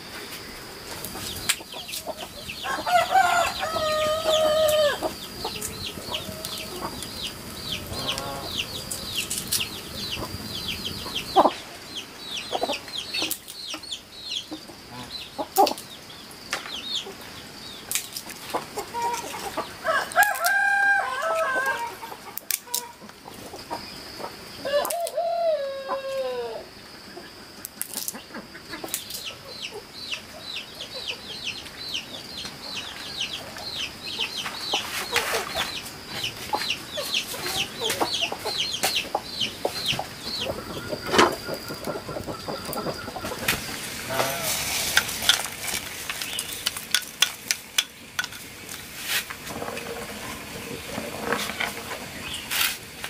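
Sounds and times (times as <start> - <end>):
rooster crowing: 2.6 - 9.1, 19.8 - 22.1, 24.6 - 26.7.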